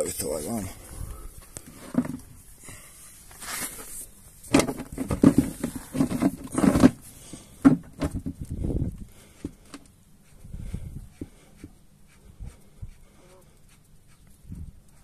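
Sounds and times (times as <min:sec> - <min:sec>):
plastic bucket scraping on gravel: 0:01.6 - 0:02.4, 0:03.3 - 0:08.3.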